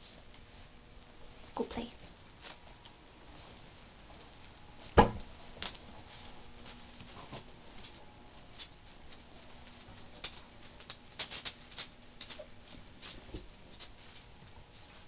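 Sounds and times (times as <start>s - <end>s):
puppy paws clicking and scuffing: 0.0s - 15.0s.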